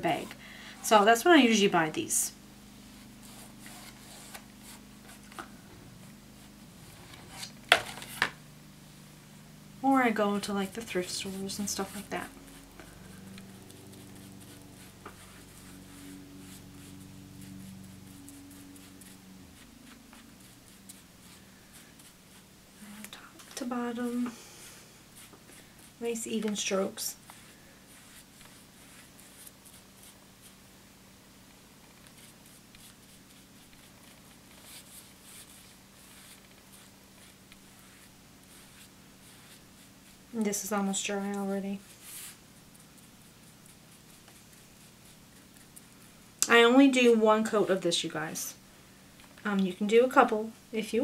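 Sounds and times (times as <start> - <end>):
steady low hum: 0.0 - 51.0
foam brush strokes: 2.7 - 9.4, 10.1 - 30.6, 32.0 - 45.8
foam brush swishing on cardboard: 10.2 - 22.5, 41.7 - 42.4.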